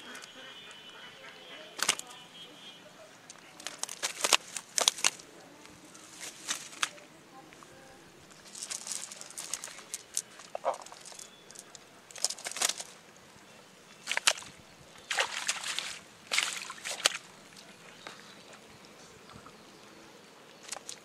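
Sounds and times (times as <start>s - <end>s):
fish flapping and slapping: 1.8s - 2.1s, 3.3s - 5.3s, 6.2s - 7.1s, 8.3s - 13.0s, 14.0s - 17.6s, 20.6s - 21.0s
wet net rustling: 3.2s - 7.2s, 8.2s - 13.2s, 14.0s - 17.8s.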